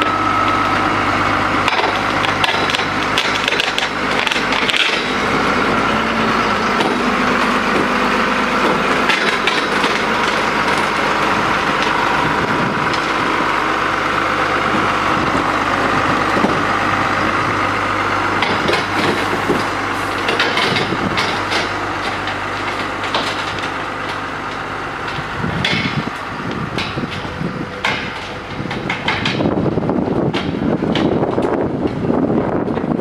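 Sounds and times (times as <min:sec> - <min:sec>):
truck engine running: 0:00.0 - 0:33.0
metallic knocks and clanks: 0:18.4 - 0:23.7, 0:26.7 - 0:29.6.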